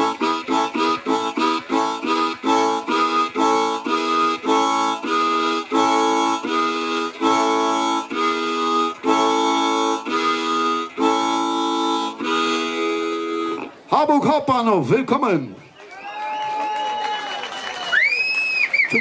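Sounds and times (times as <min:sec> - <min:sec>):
amplified blues harmonica chords: 0:00.0 - 0:13.9.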